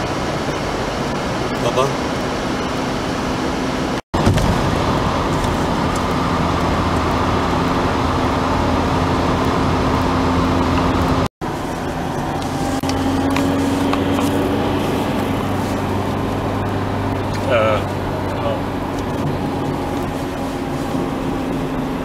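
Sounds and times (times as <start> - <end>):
car cabin road noise: 0.0 - 22.0.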